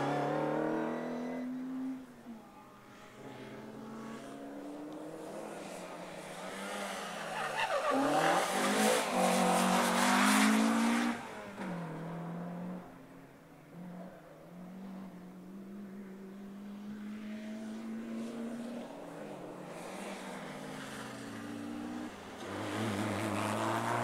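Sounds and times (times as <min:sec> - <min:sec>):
rally car engine revving: 0:00.0 - 0:02.5, 0:03.2 - 0:13.0, 0:13.7 - 0:24.0
tyre squeal and scrabbling: 0:07.2 - 0:08.6.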